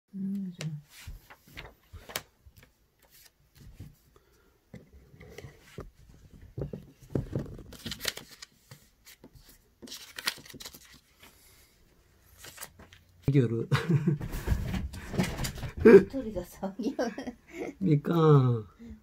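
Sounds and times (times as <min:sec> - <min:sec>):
paper rustling and sliding: 0:00.9 - 0:04.1, 0:07.0 - 0:13.1.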